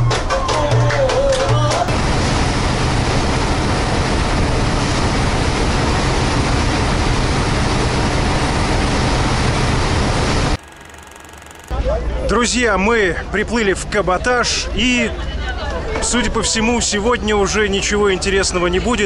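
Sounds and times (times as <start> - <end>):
ferry rumbling: 1.9 - 10.7.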